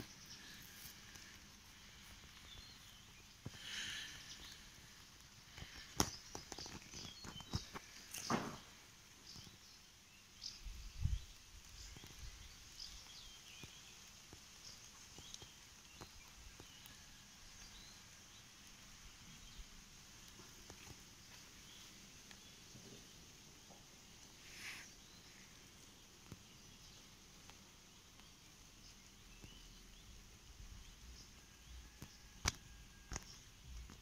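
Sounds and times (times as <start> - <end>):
faint bird chirps: 20.4 - 34.0.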